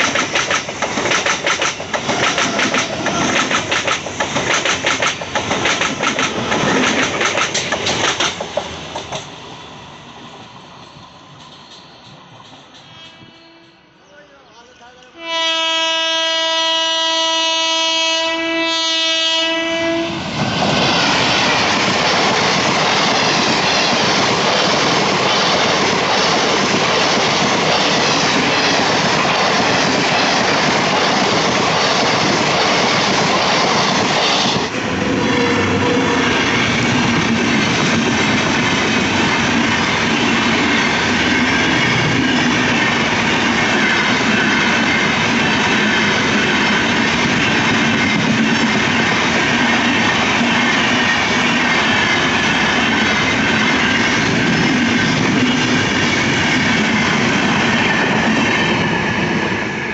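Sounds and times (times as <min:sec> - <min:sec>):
wheels clacking over rail joints: 0:00.0 - 0:09.4
train rushing rumble: 0:00.0 - 0:13.0, 0:19.8 - 0:59.9
train horn blast: 0:12.8 - 0:14.0, 0:15.1 - 0:20.2, 0:34.9 - 0:36.4.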